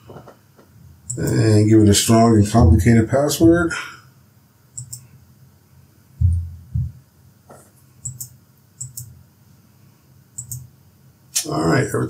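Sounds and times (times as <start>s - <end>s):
dull low thumps: 2.5s - 3.8s, 6.2s - 7.0s
keyboard and mouse clicks: 4.8s - 5.1s, 7.5s - 9.2s, 10.4s - 10.7s.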